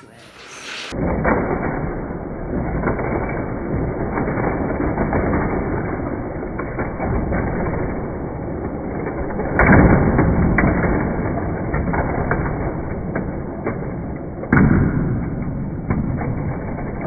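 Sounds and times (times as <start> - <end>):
toy cars rumbling on track: 0.3 - 14.6.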